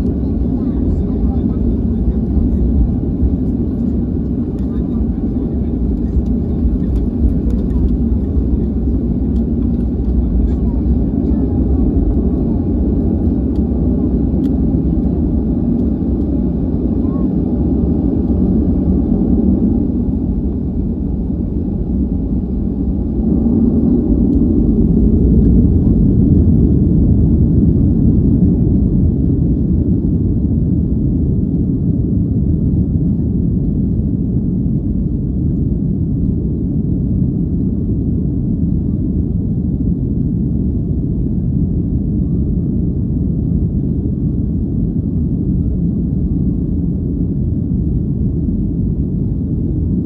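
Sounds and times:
jet engines at takeoff thrust: 0:00.0 - 0:50.0.

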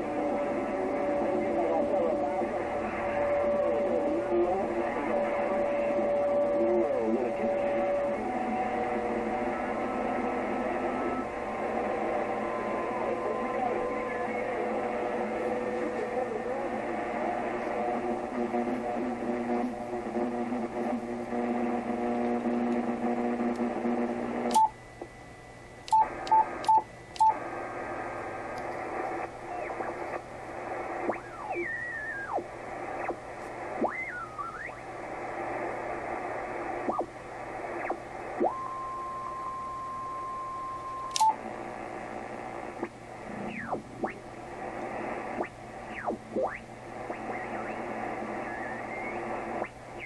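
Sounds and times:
radio static: 0:00.0 - 0:25.1, 0:25.9 - 0:50.0
clicks with keypress beeps: 0:25.9 - 0:27.4.

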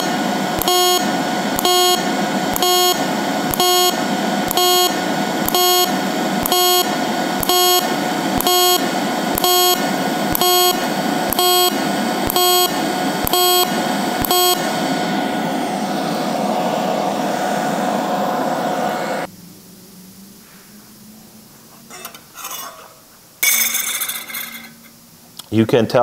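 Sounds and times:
welding arc buzzing bursts: 0:00.0 - 0:19.3
steady hiss: 0:14.8 - 0:23.4.

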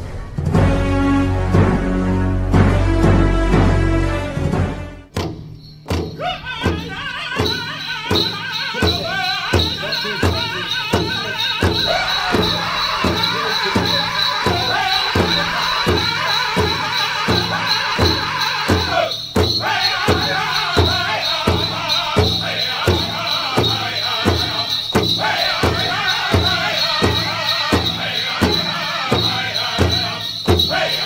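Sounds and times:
steady drum beat: 0:00.5 - 0:31.0
drum group singing: 0:06.0 - 0:31.0.

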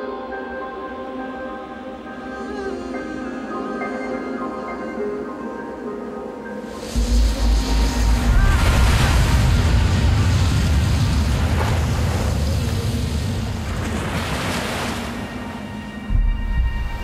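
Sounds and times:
wind: 0:00.0 - 0:17.0
waves breaking against cliffs: 0:06.8 - 0:16.0.

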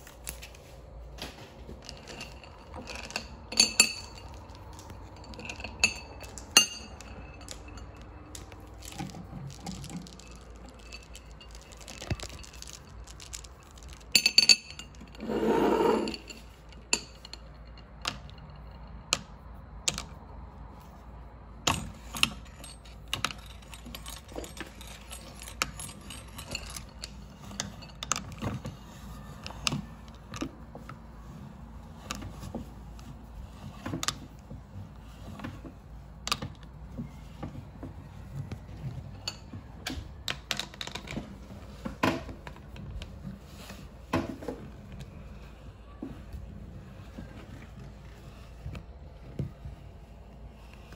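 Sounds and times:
gumballs clinking in metal grinder: 0:01.9 - 0:18.5.

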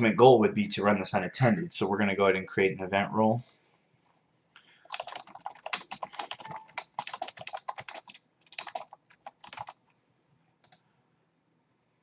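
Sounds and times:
computer keyboard typing: 0:04.8 - 0:09.8, 0:10.6 - 0:10.8.

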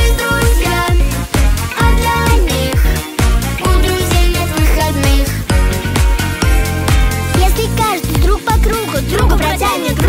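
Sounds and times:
kick drum: 0:00.0 - 0:09.5
synth chords: 0:08.3 - 0:10.0.

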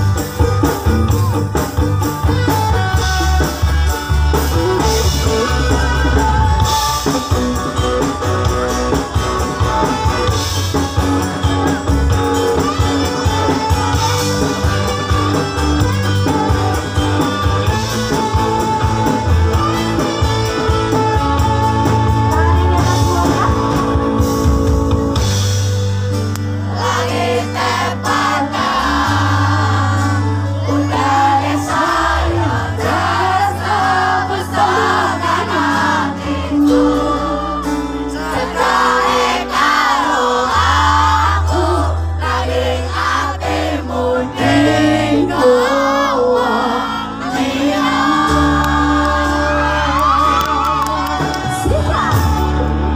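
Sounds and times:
drum kit: 0:00.0 - 0:45.6, 0:47.1 - 0:52.9
electric guitar: 0:00.0 - 0:52.9
saxophone: 0:01.0 - 0:25.3
woman singing lead vocal: 0:05.0 - 0:07.2, 0:20.9 - 0:24.0, 0:26.9 - 0:52.9.

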